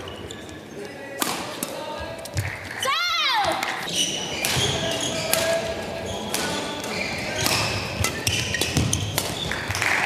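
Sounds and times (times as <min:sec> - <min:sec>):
shoes squeaking on court floor: 0:00.0 - 0:01.2, 0:03.6 - 0:10.0.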